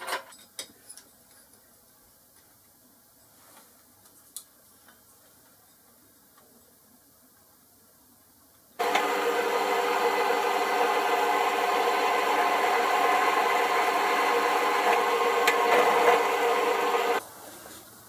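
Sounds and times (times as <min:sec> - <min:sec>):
pillar drill cutting metal: 0:08.8 - 0:17.2.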